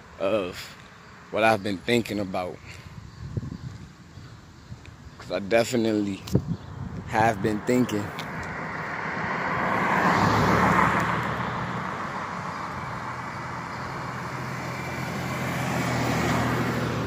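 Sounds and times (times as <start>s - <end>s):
car passing on road: 6.2s - 17.0s
vehicle approaching: 6.5s - 17.0s.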